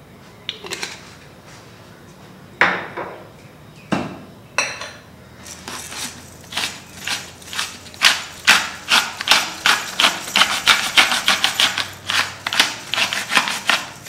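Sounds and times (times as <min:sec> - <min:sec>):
kitchenware knocks and clinks: 0:02.6 - 0:03.2, 0:03.9 - 0:05.0
pepper mill grinding: 0:05.4 - 0:14.0.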